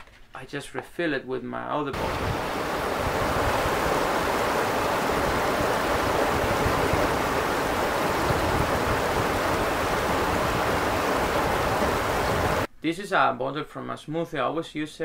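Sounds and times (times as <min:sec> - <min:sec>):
river rushing over stones: 0:02.0 - 0:12.7.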